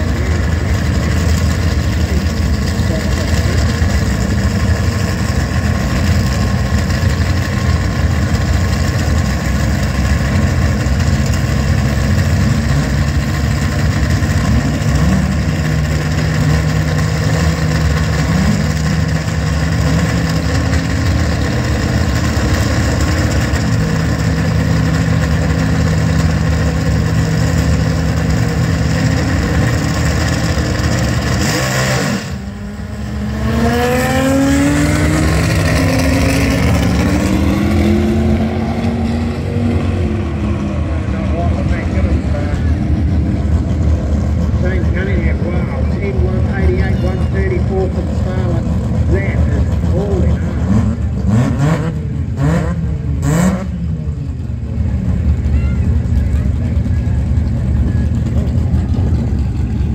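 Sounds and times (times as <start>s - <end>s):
race car engines idling: 0.0s - 59.9s.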